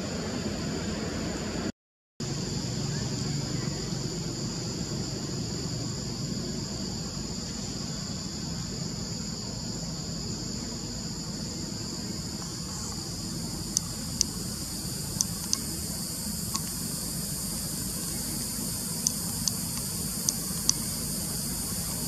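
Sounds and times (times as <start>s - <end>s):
insects droning: 0.0s - 22.0s
sharp clicks: 15.2s - 15.7s.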